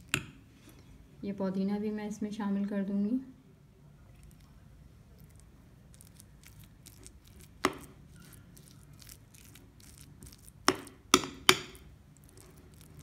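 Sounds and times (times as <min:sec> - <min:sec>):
spoon scraping in a bowl: 0:06.8 - 0:13.0.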